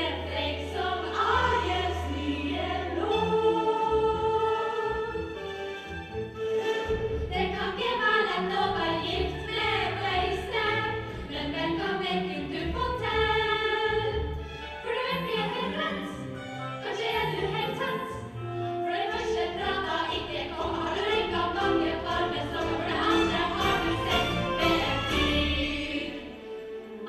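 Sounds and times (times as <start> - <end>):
women singing together: 0.0 - 5.1, 7.3 - 14.1, 16.8 - 18.2, 18.9 - 26.5
instrumental accompaniment: 14.1 - 27.0.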